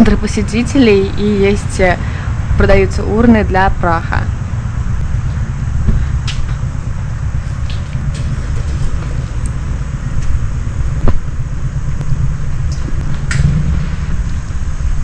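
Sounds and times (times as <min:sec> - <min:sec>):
wind buffeting microphone: 0:00.0 - 0:15.0
bicycle rolling on pavement: 0:04.4 - 0:15.0.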